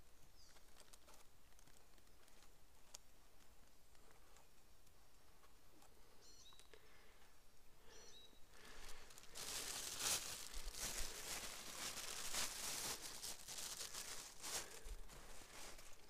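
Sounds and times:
plastic bag crinkling: 0.4s - 3.0s, 8.6s - 16.0s
footsteps through undergrowth: 8.6s - 16.0s.

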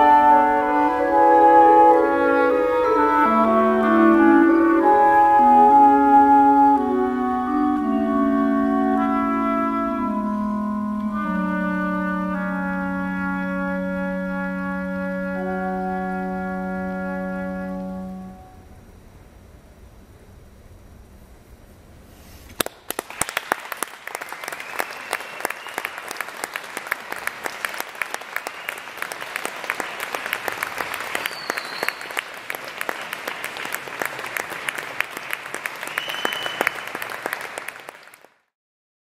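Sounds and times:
audience applause: 22.6s - 38.5s.

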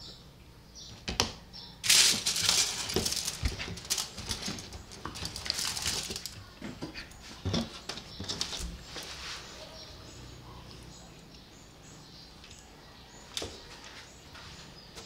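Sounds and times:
aluminium foil crinkling: 1.8s - 6.5s.

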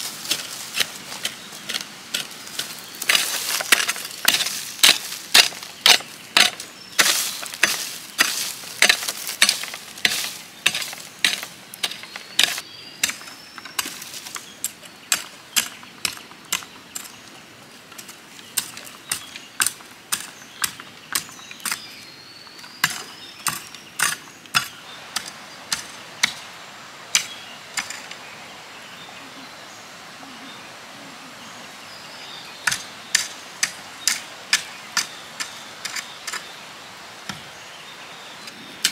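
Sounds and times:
hoe chopping into stony soil: 0.0s - 14.4s.

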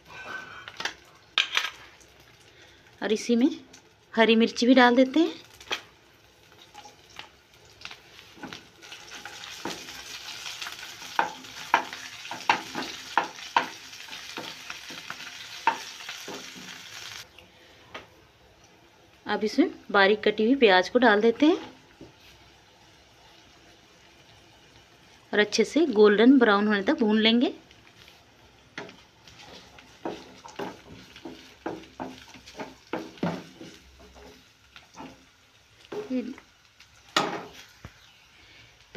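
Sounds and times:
spices sizzling in hot oil: 0.0s - 17.4s, 18.2s - 38.9s
wooden spatula knocking and scraping pan: 11.0s - 16.8s, 28.8s - 36.3s
wooden spatula scraping pan: 28.8s - 35.2s.

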